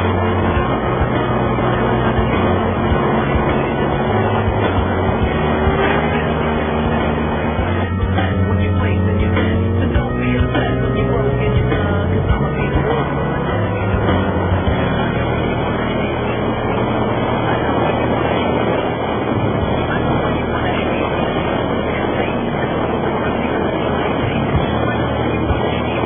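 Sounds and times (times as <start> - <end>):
motorcycle engine running: 0.0 - 17.8
wind noise on microphone: 0.0 - 26.0.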